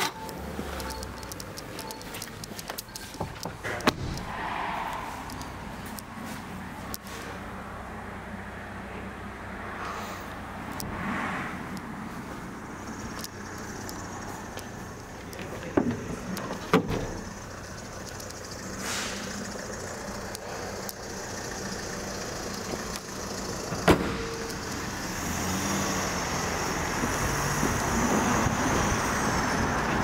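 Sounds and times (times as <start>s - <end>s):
road traffic passing: 0.0s - 30.0s
sharp knocks: 3.2s - 4.3s.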